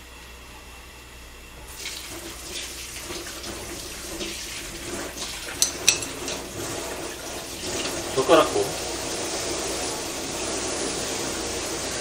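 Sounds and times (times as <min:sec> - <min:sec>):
kitchen tap running: 0:01.7 - 0:12.0.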